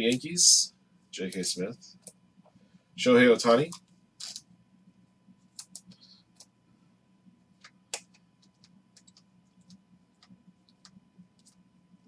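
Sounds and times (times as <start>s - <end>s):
trading cards flipping: 3.7s - 4.5s.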